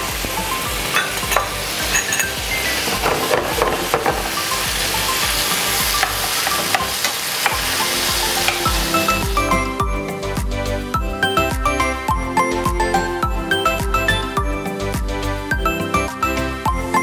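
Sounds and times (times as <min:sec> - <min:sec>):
food sizzling in a frying pan: 0:00.0 - 0:10.6
utensil scraping a pan: 0:01.0 - 0:04.6.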